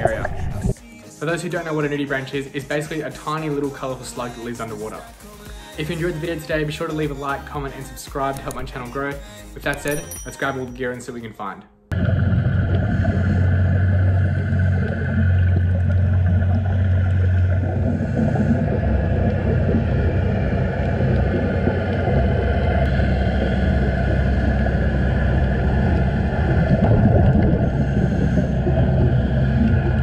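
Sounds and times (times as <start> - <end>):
underwater low rumble: 0.0 - 0.8, 11.9 - 30.0.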